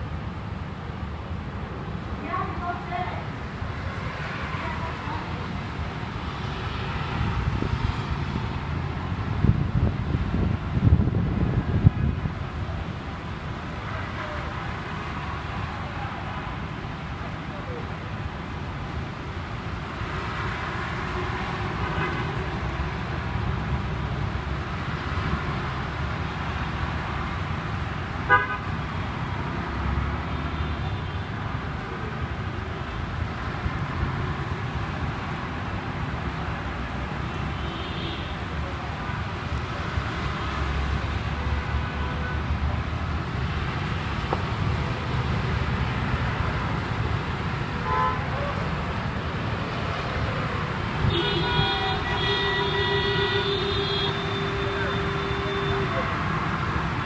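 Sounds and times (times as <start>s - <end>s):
traffic rumble on wet street: 0.0s - 57.0s
car horns tooting: 28.3s - 28.6s, 51.0s - 56.1s.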